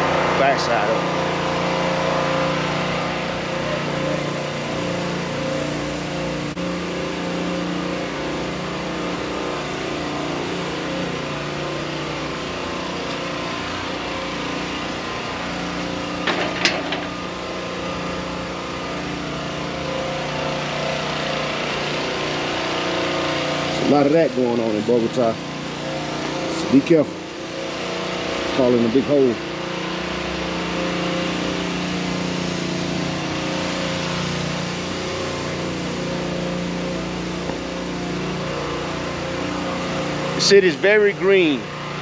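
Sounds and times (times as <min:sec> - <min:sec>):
engine humming: 0:00.0 - 0:28.4
city traffic noise: 0:00.0 - 0:28.7.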